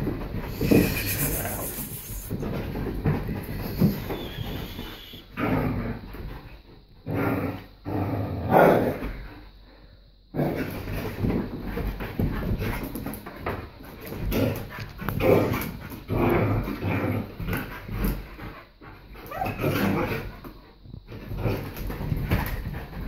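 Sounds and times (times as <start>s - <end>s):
dogs vocalising: 0.6s - 2.4s, 3.7s - 5.4s.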